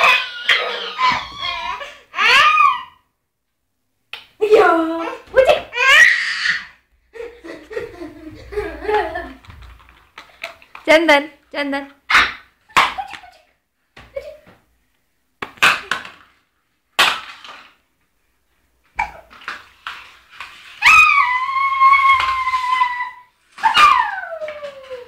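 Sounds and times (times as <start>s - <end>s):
baby laughing: 0.0s - 2.9s
baby squealing: 0.0s - 3.0s, 5.7s - 6.8s.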